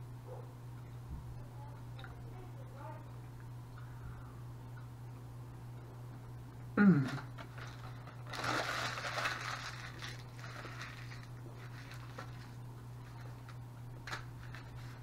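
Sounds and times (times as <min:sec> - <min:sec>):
low steady hum: 0:00.0 - 0:15.0
paper wrapper crinkling: 0:07.1 - 0:15.0.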